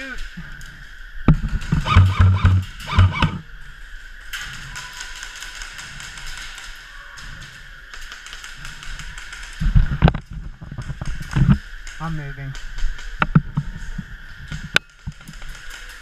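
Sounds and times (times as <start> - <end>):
airsoft guns firing: 1.7 - 3.5.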